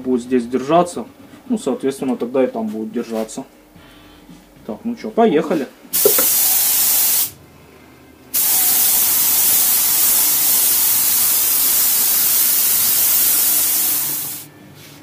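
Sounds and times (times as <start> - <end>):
paint spray gun hissing: 6.0 - 7.3, 8.3 - 14.5.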